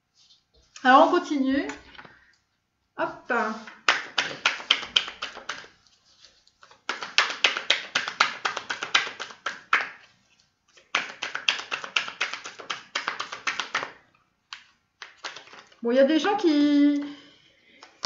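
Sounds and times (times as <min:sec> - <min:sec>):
cards being shuffled: 0:03.5 - 0:15.8.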